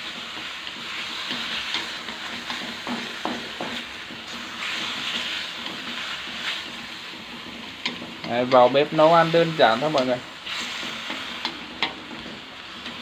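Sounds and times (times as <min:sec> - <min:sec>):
beef sizzling in a wok: 0:00.0 - 0:13.0
chopsticks knocking against pan: 0:02.5 - 0:03.8.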